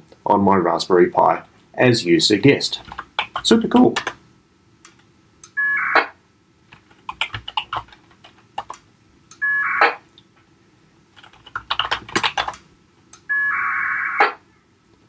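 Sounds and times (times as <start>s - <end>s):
keyboard typing: 2.7s - 4.2s, 6.7s - 8.8s, 11.2s - 12.6s
packet radio data tones: 5.6s - 6.2s, 9.4s - 10.1s.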